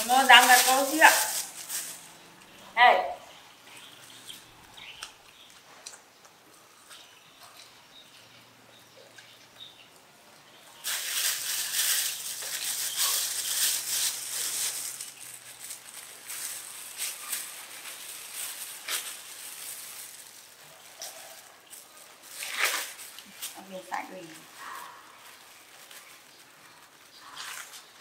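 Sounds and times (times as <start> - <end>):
plastic bag crinkling: 0.0 - 2.7, 10.8 - 28.0.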